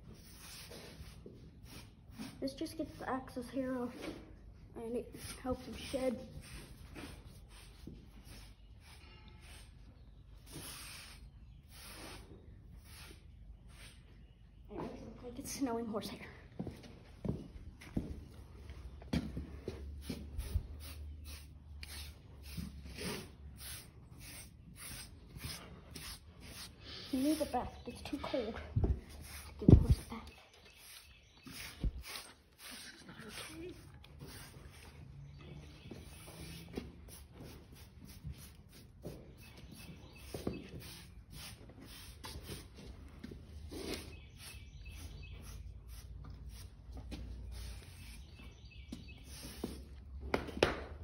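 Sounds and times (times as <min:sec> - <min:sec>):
grooming tool scraping horse coat: 0:20.0 - 0:28.4, 0:29.1 - 0:35.0, 0:35.9 - 0:42.9.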